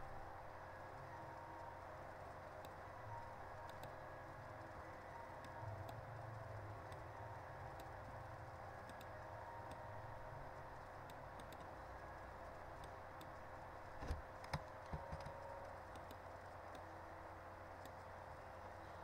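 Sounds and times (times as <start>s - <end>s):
faint hiss and hum: 0.0s - 19.0s
computer mouse clicks: 3.6s - 4.0s, 8.9s - 9.8s, 11.0s - 11.8s, 14.0s - 16.9s, 17.8s - 18.1s.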